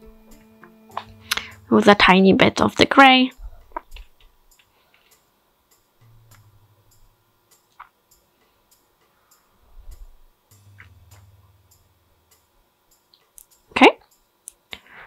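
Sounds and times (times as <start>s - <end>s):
faint steady ticking: 0.0s - 2.2s, 2.9s - 15.0s.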